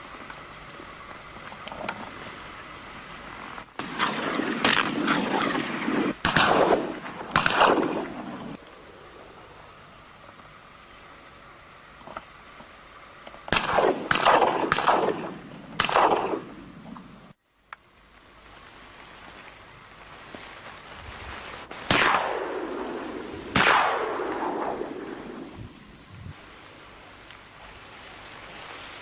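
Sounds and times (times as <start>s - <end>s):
shotgun shots echoing: 3.8s - 8.6s, 13.5s - 16.7s, 21.9s - 25.5s.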